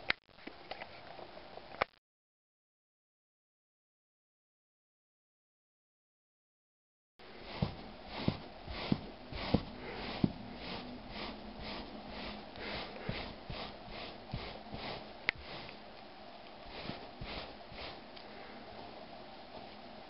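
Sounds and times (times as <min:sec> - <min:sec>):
pet-hair remover rubbing on wool: 0:07.3 - 0:15.9, 0:16.5 - 0:18.1.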